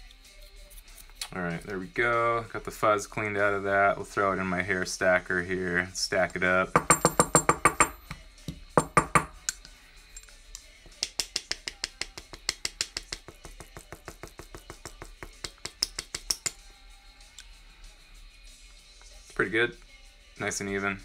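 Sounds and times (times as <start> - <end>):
hair stacker tapping on desk: 6.8 - 8.2, 8.8 - 9.4, 11.0 - 16.4.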